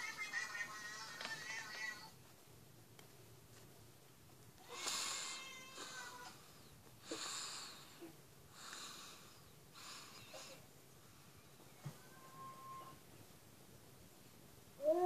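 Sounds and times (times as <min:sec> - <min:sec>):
cat meows from a tv: 0:04.6 - 0:06.3, 0:11.8 - 0:13.0.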